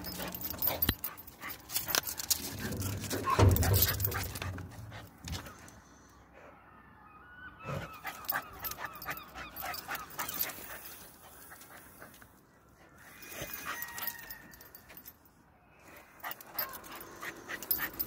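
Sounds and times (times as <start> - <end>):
dog whining: 7.5 - 11.0.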